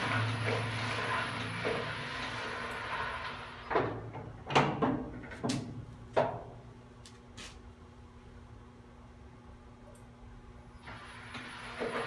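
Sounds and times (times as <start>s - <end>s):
machine running: 0.0s - 3.8s.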